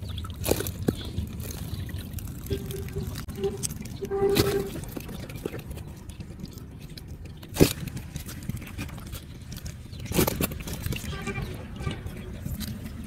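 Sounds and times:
net rustling and scraping: 0.5 - 5.7.

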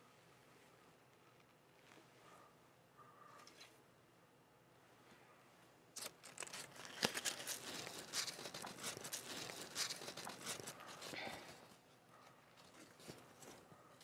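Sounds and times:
paper crinkling: 6.0 - 11.8, 12.4 - 13.7.

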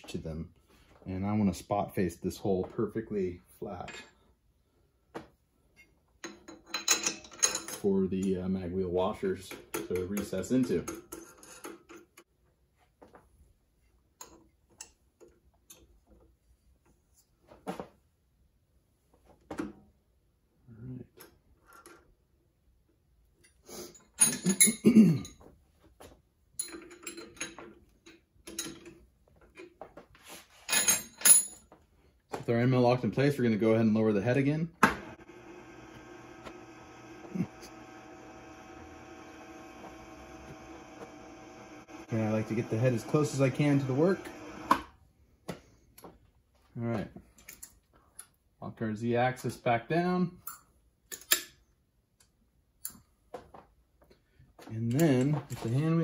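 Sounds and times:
faint electrical hum: 18.5 - 56.0.

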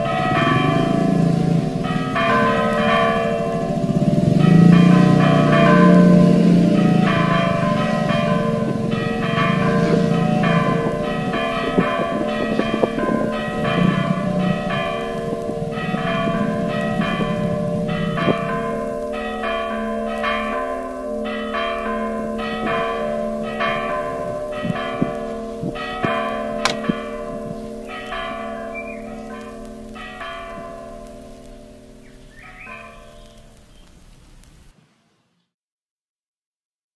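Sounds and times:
low rumble: 0.0 - 19.8
church bells ringing: 0.0 - 33.7.

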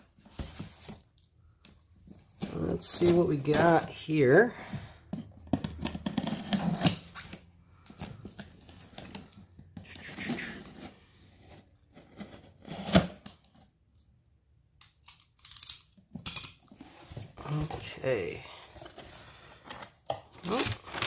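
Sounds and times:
tape and cardboard tearing: 5.6 - 7.4, 12.0 - 13.3.

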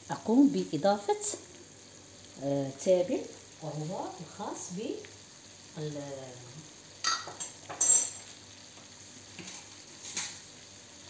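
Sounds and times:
filling sizzling in a frying pan: 0.0 - 11.0
utensils clinking and clattering: 7.1 - 8.3.

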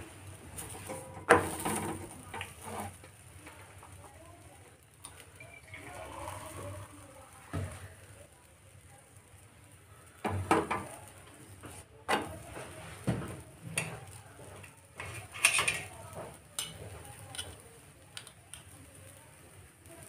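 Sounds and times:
metal utensils clattering on pan: 0.6 - 3.9, 10.2 - 11.0, 11.7 - 17.6.

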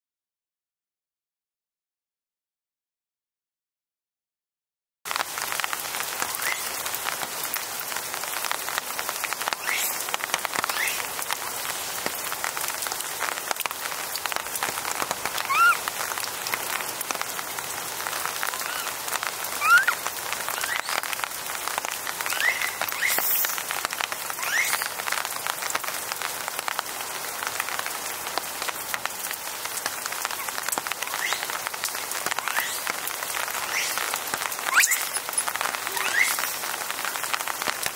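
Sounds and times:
steady rain falling: 5.1 - 37.9
short rising animal calls: 15.4 - 15.8, 18.5 - 20.0.

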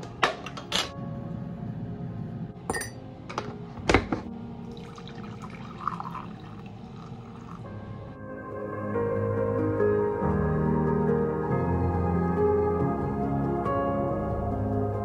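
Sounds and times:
metal tin lid clinking: 2.7 - 4.2
water pouring into a mug: 4.6 - 7.8.

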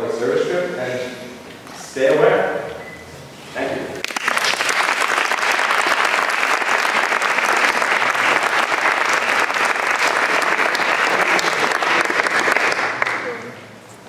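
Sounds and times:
audience applauding: 4.0 - 13.6.

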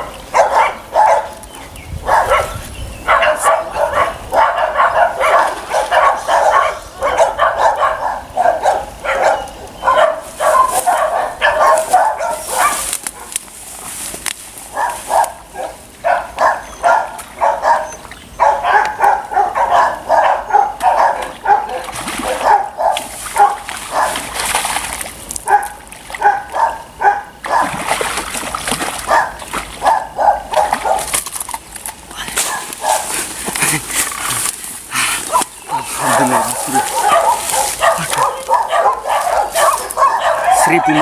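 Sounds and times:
dog barking: 0.0 - 1.4, 2.0 - 13.4, 14.7 - 24.3, 25.4 - 27.8, 29.1 - 31.1, 32.4 - 33.2, 35.3 - 41.0.

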